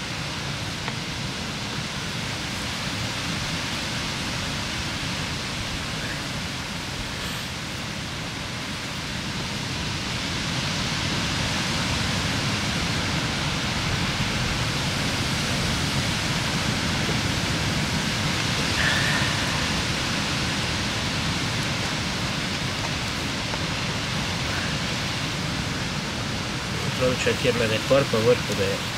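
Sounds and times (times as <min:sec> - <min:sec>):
wind rushing across microphone: 0:00.0 - 0:28.9
faint high note: 0:18.8 - 0:20.0.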